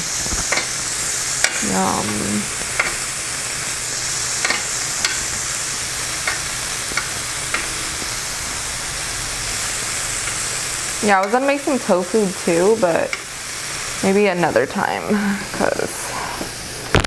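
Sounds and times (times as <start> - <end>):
meat sizzling on grill: 0.0 - 17.0
metal tongs clicking on grill: 0.4 - 0.8, 1.4 - 1.7, 2.7 - 3.0, 4.4 - 5.3, 6.2 - 7.7, 11.0 - 11.7, 13.0 - 13.3.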